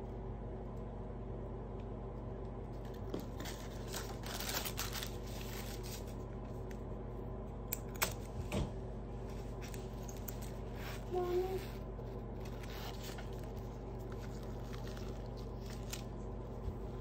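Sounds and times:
background hum: 0:00.0 - 0:17.0
wallet rustling in hands: 0:02.8 - 0:06.3, 0:09.2 - 0:17.0.

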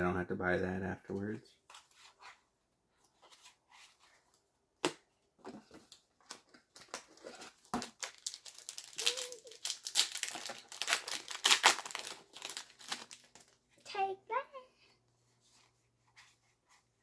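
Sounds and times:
foil wrapper crinkling and tearing: 0:06.7 - 0:13.6.

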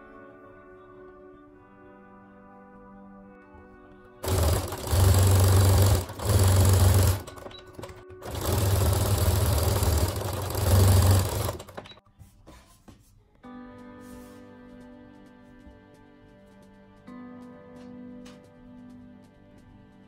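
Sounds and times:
sewing machine stitching: 0:04.2 - 0:12.0.

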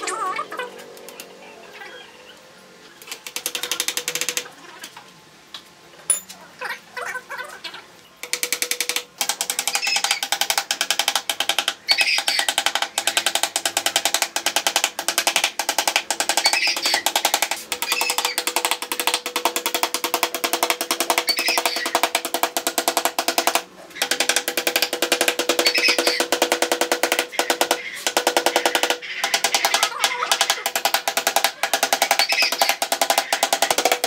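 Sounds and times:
hammer driving nails: 0:08.2 - 0:34.0.

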